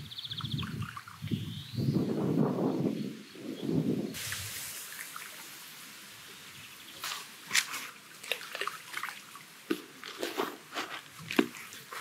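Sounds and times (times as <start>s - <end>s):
soft hiss: 4.0s - 12.0s
water dripping: 4.2s - 10.2s.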